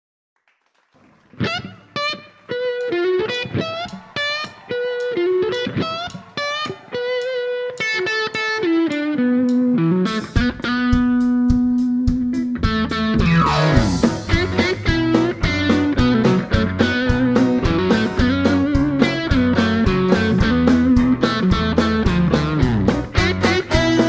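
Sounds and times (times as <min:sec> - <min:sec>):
electric guitar blues solo: 0:01.1 - 0:24.0
drums and band: 0:03.8 - 0:07.9, 0:10.1 - 0:24.0.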